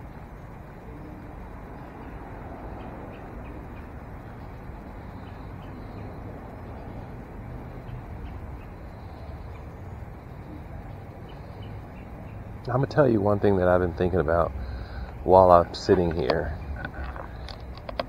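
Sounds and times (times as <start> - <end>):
birds chirping: 0.0 - 17.8
vehicle engines idling: 0.0 - 18.0.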